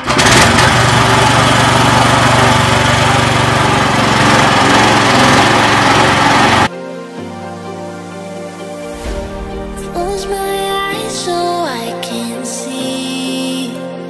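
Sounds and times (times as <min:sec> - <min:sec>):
boat motor running: 0:00.0 - 0:06.7.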